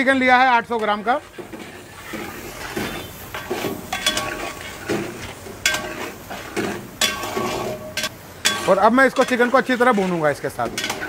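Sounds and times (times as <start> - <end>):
food sizzling: 0.0 - 11.0
steel spatula scraping a steel pot: 1.1 - 11.0
pot ringing: 2.7 - 4.8, 5.7 - 9.4.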